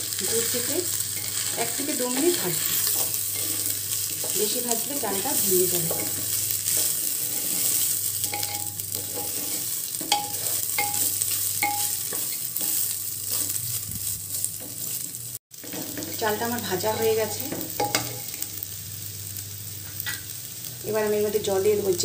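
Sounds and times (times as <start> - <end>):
rice sizzling in oil: 0.0 - 22.0
wooden spatula scraping: 1.2 - 16.3.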